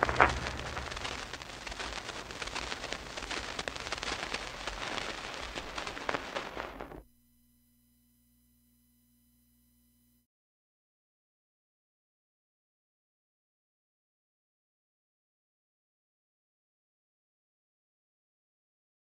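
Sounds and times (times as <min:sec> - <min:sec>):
old radio broadcast crackle and hiss: 0:00.0 - 0:07.1
faint hum: 0:00.0 - 0:10.2.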